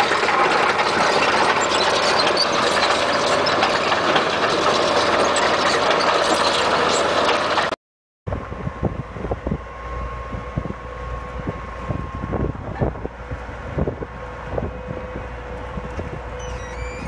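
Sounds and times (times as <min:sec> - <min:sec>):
tractor engine running: 0:00.0 - 0:17.0
hydraulic drive whine: 0:08.3 - 0:17.0
wind buffeting microphone: 0:08.3 - 0:17.0.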